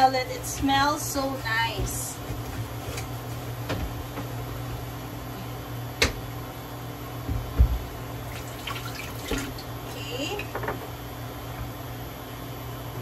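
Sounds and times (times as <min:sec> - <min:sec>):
induction cooktop fan humming: 0:00.0 - 0:13.0.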